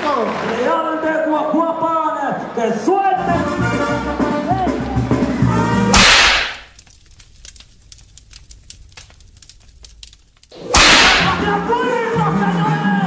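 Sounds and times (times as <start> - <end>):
faint scattered crackling: 6.0 - 11.4.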